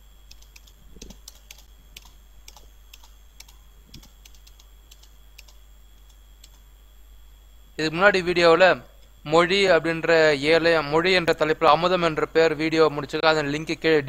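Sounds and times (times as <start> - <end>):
computer keys clicking: 0.2 - 6.7.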